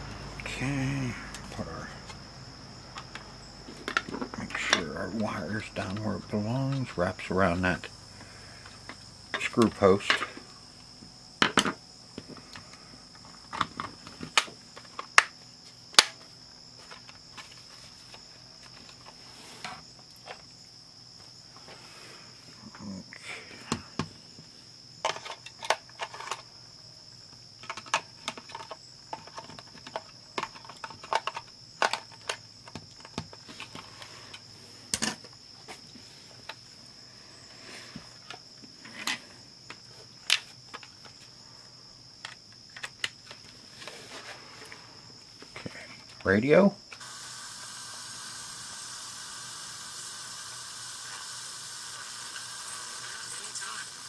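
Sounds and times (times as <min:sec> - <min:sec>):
high-pitched whine: 0:00.0 - 0:08.1
clicks of handling plastic parts: 0:27.6 - 0:35.4, 0:38.2 - 0:41.2, 0:42.2 - 0:44.0.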